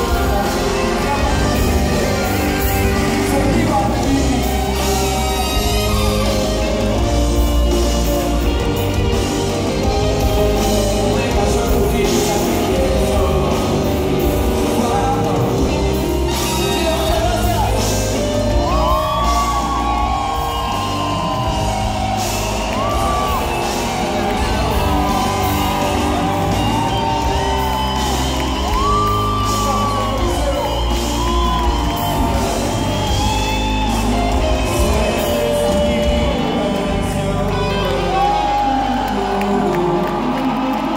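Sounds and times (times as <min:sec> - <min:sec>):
lead singer holding long notes: 0:00.0 - 0:40.9
live reggae band playing: 0:00.0 - 0:40.9
crowd shouting: 0:16.2 - 0:40.9.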